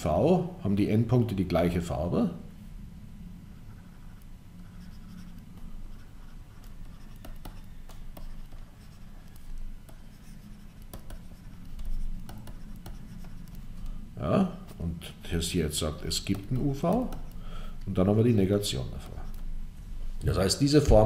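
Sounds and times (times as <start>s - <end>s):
steady low hum: 0.0s - 21.0s
stylus tapping and scratching: 3.7s - 14.0s, 15.9s - 17.4s, 18.6s - 19.5s.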